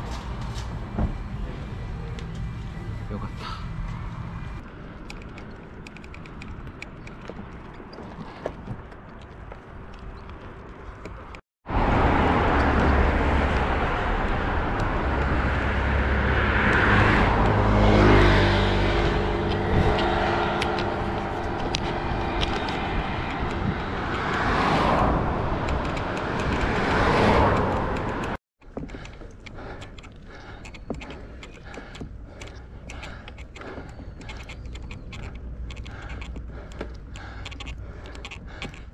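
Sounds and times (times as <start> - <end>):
motor vehicles passing: 0.0 - 38.9
wind rushing over microphone: 11.7 - 28.4.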